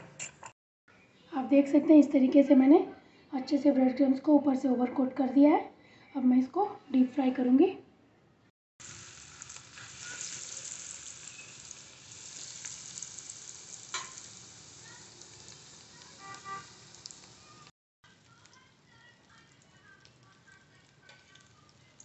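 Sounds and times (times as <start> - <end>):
deep-frying sizzle: 8.8 - 22.0.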